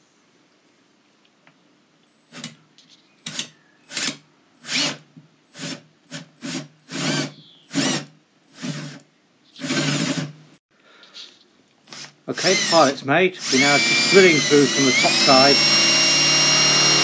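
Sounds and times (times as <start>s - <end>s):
cordless drill short bursts: 3.2s - 9.0s, 9.6s - 10.4s, 11.8s - 17.0s.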